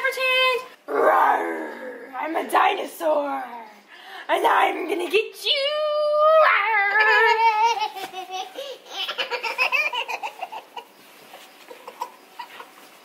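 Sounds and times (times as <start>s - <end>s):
woman's playful voice: 2.2s - 7.8s
baby giggling: 6.9s - 11.0s.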